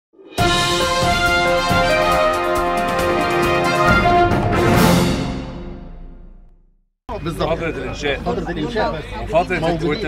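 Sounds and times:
news theme music: 0.3s - 6.5s.

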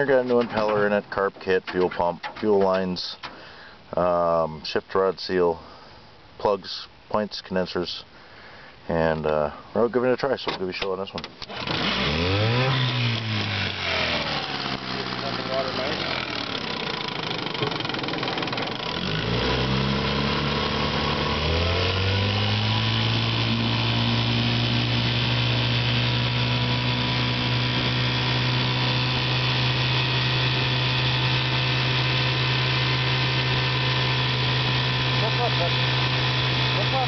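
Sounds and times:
outboard motor revving: 11.4s - 37.0s.

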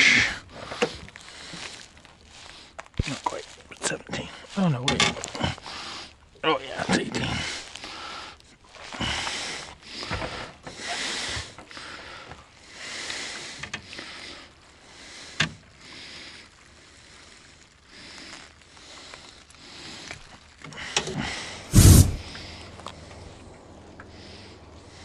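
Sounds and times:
wind gusting over microphone: 21.7s - 22.3s.

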